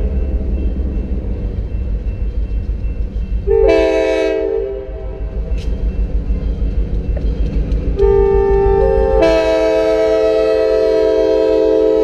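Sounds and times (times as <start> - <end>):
locomotive air horn blast: 3.5 - 5.2, 8.0 - 12.0.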